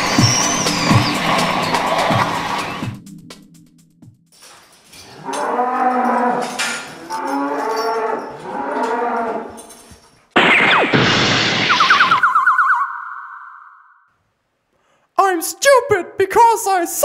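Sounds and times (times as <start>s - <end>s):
cow mooing: 5.0s - 9.6s
loud sound with falling pitch: 10.4s - 14.0s.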